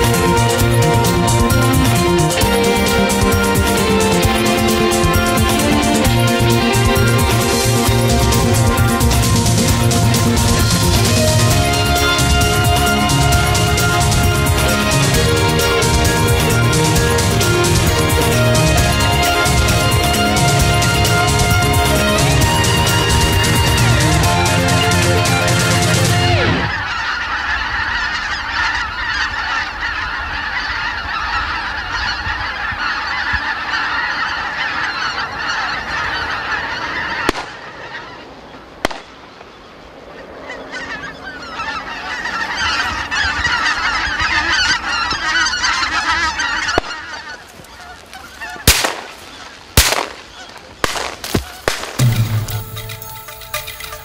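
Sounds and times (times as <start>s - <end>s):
geese honking in flight: 0.0s - 54.0s
sharp loud bangs: 48.6s - 53.7s.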